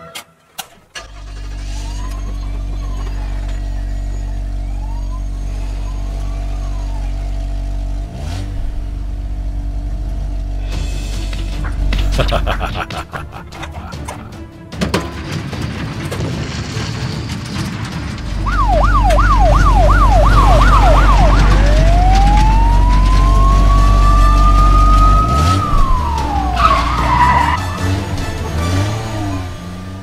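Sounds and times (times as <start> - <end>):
deep engine rumble: 1.1 - 14.7, 17.7 - 29.8
siren yelping: 18.5 - 27.6
tyre screech: 25.3 - 27.7.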